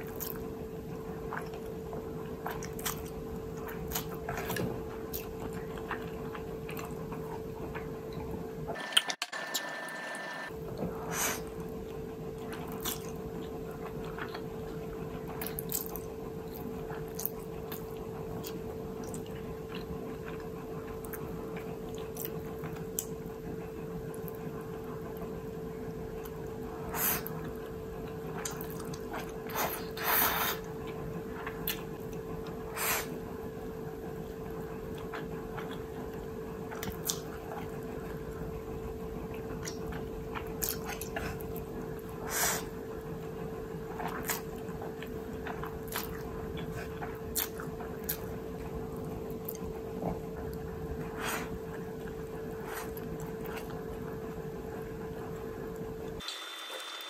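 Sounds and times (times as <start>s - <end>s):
faint hum: 0.0s - 57.0s
chewing and mouth clicks: 1.1s - 8.4s, 11.5s - 25.3s, 26.2s - 32.6s, 34.5s - 42.8s, 43.5s - 54.2s
slurping noodles: 29.5s - 30.7s.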